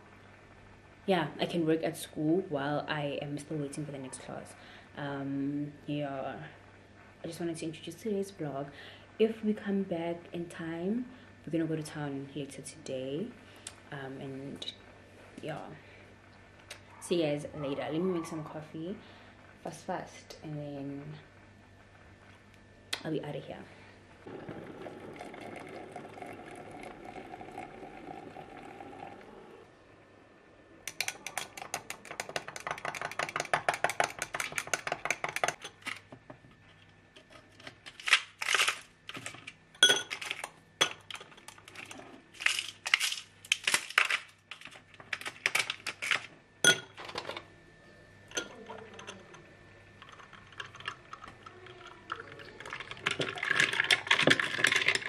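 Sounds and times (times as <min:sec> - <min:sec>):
hot water pouring into a glass: 0:24.3 - 0:29.7, 0:50.0 - 0:55.0
milk pouring: 0:24.3 - 0:29.7, 0:50.0 - 0:55.0
spoon clinking against glass: 0:48.3 - 0:49.3
ice cubes clinking into glass: 0:52.1 - 0:55.0.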